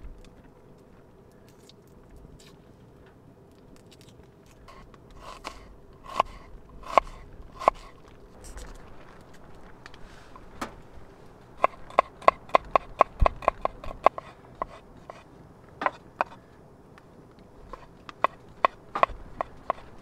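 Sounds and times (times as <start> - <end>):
knife tapping on wooden board: 17.7 - 19.9.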